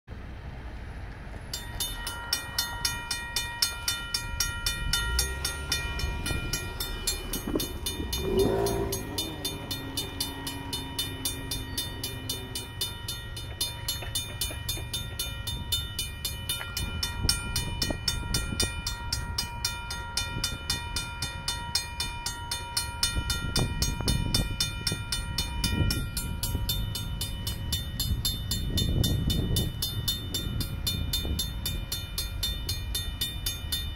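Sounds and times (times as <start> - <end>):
low train rumble: 0.1 - 33.9
railroad crossing bells clanging: 0.2 - 33.9
train horn: 8.0 - 12.7.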